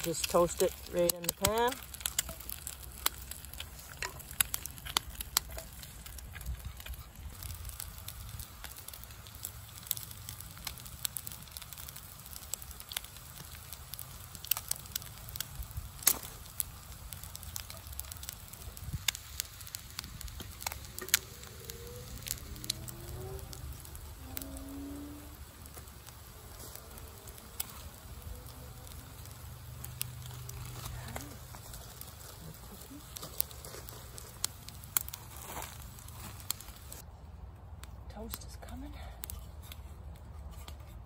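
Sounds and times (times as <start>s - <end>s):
wood fire crackling: 0.0s - 41.0s
low rumble: 18.4s - 38.0s.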